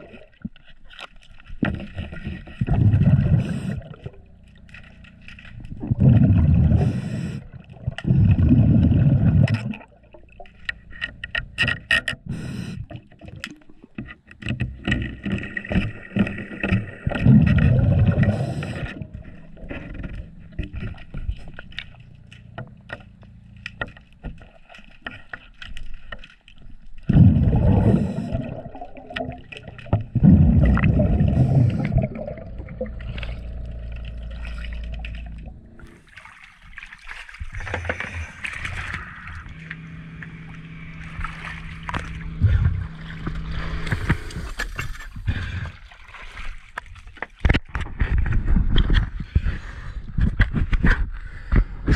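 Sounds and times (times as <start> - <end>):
underwater bubbling exhalations: 2.0 - 10.5, 15.0 - 21.8, 27.0 - 46.1.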